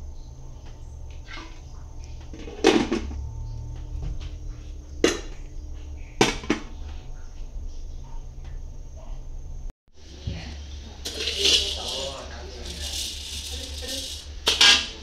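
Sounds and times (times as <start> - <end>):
metal tray clanking: 11.0 - 15.0.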